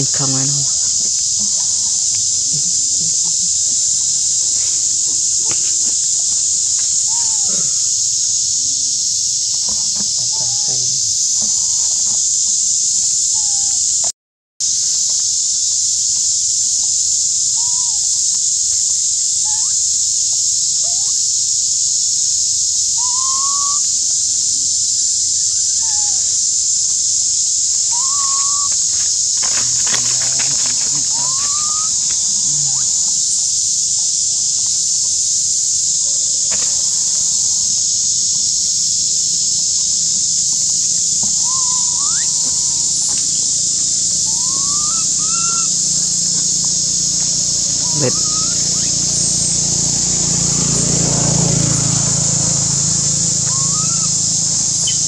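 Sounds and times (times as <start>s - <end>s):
high insect drone: 0.0s - 55.0s
short rising chirping calls: 27.8s - 33.6s, 41.3s - 55.0s.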